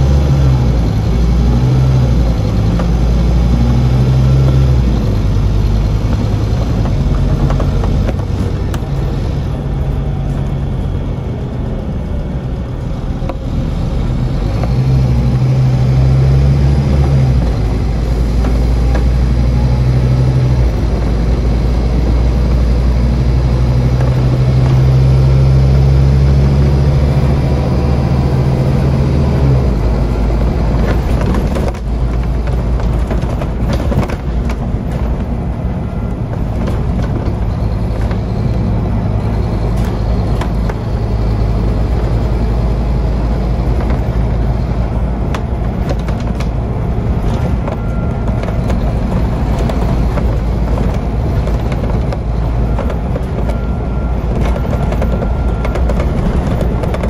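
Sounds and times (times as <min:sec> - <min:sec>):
bus engine droning: 0:00.0 - 0:57.0
road noise: 0:00.0 - 0:57.0
bodywork knocking and rattling: 0:02.4 - 0:09.2, 0:30.2 - 0:41.5, 0:43.2 - 0:57.0.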